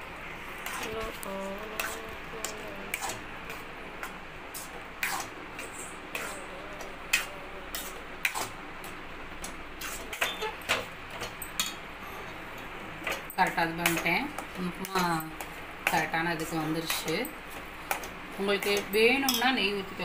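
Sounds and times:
steady low hiss: 0.0 - 10.1.

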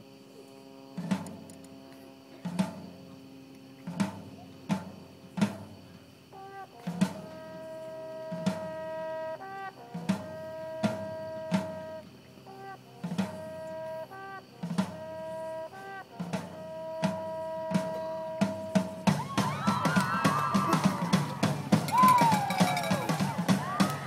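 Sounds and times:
marching band playing: 2.4 - 3.2, 3.8 - 24.0
brass sustained chords: 6.4 - 19.1
sharp drum hits: 17.9 - 24.0.

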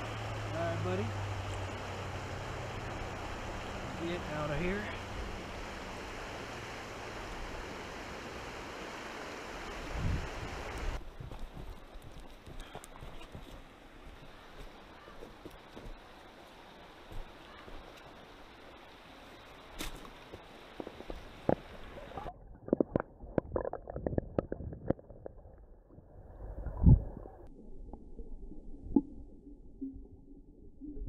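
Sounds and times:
water hissing: 0.0 - 11.0
gurgling and knocking: 20.8 - 25.7.

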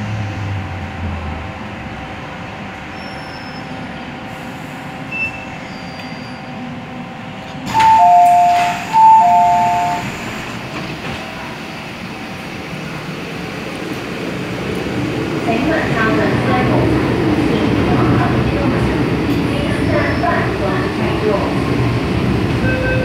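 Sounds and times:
metro train cabin rumble: 0.0 - 23.0
train doors opening: 7.4 - 12.4
two-tone door chime: 7.7 - 10.1.

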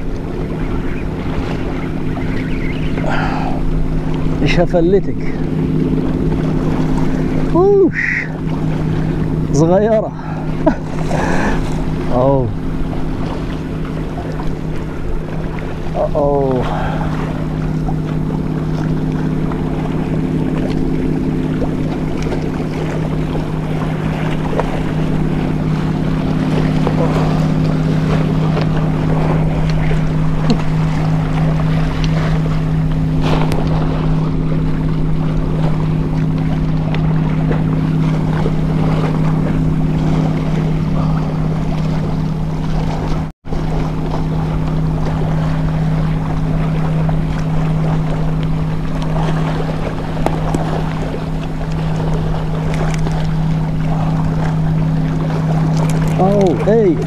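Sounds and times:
low engine hum: 0.0 - 57.0
water: 0.0 - 57.0
wind: 0.0 - 57.0.

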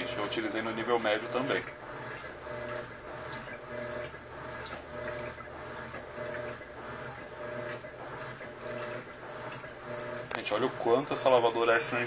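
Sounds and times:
faint motor hum: 0.0 - 12.0
water churning in washing machine: 0.0 - 12.0.

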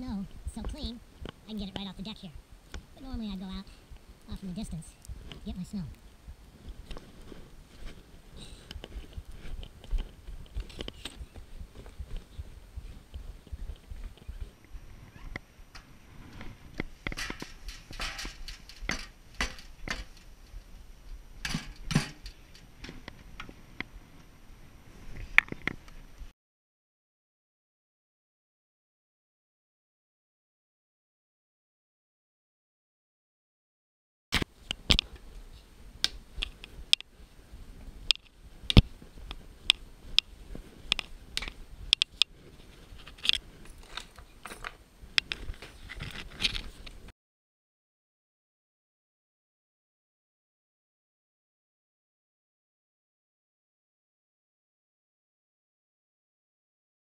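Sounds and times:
snow crunching: 3.1 - 17.0, 35.6 - 43.9
footsteps crunching in snow: 6.5 - 15.1.

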